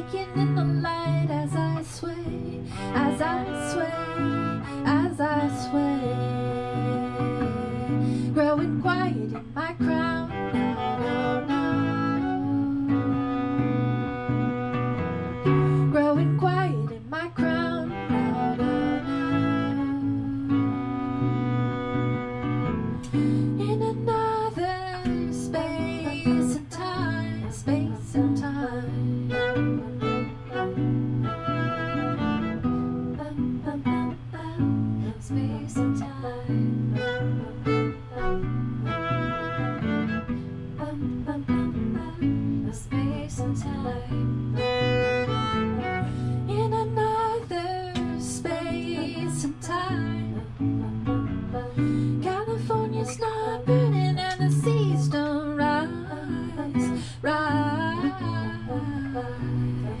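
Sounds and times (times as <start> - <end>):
woman singing: 0.0 - 22.2, 23.0 - 60.0
acoustic guitar: 0.0 - 60.0
violin: 0.0 - 60.0.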